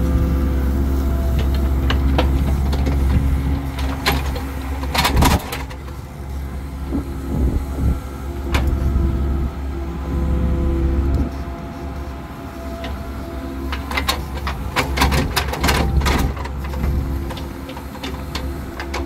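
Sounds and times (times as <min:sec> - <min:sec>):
excavator diesel engine: 0:00.0 - 0:19.0
bucket and arm clanking: 0:12.7 - 0:19.0.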